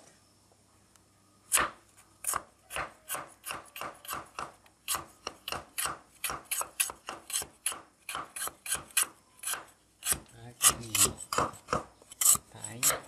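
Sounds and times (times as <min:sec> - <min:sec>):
cleaver chopping on cutting board: 0:01.5 - 0:11.9.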